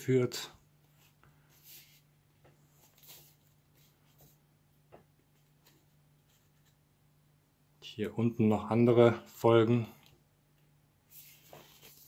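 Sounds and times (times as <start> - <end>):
low steady hum: 0.0 - 12.0
cardboard record sleeve rustling: 0.8 - 4.4, 11.1 - 12.0.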